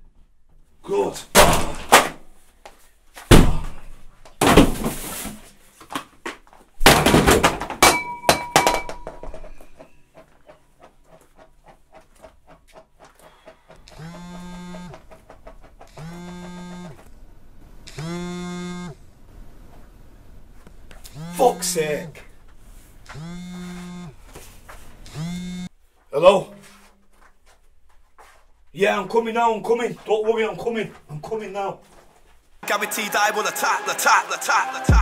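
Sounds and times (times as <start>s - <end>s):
kitchen things crashing and clattering: 6.8s - 10.1s
mobile phone ringing: 13.9s - 15.1s, 15.9s - 17.1s, 17.9s - 19.0s, 21.1s - 22.0s, 23.1s - 24.2s.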